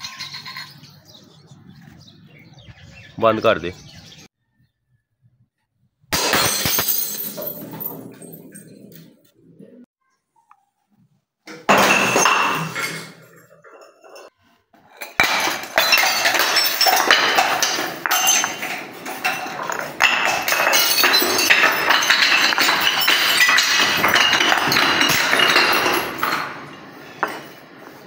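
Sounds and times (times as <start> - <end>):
glass bottles smashing on stairs: 0.0 - 0.9, 6.1 - 8.9, 11.5 - 27.8
shards and beads scattering: 0.0 - 1.0, 6.1 - 9.0, 11.6 - 28.0.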